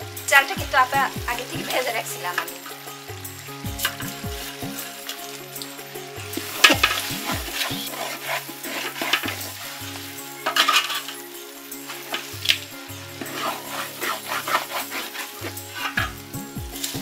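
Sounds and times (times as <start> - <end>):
frying sizzle: 0.0 - 17.0
spatula scraping metal pot: 6.4 - 17.0.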